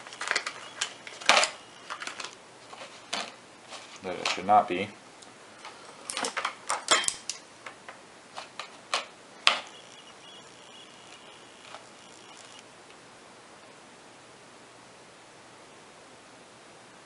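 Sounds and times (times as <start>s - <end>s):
faint steady high tone: 0.0s - 2.4s, 9.4s - 12.6s.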